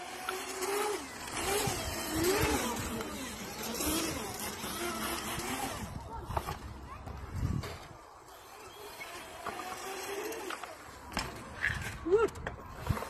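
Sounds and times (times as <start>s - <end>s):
electric motor whining: 0.0s - 6.6s.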